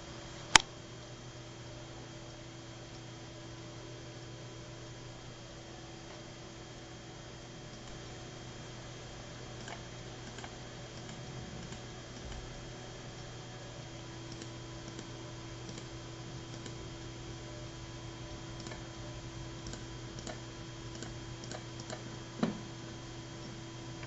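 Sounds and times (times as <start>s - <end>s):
low electrical hum: 0.0s - 24.0s
computer clicking: 9.6s - 12.5s, 14.2s - 16.8s, 18.6s - 18.9s, 19.6s - 22.1s.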